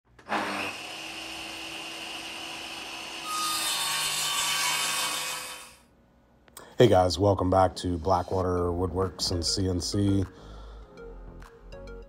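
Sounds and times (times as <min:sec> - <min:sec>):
saw cutting through wood: 0:00.2 - 0:05.8.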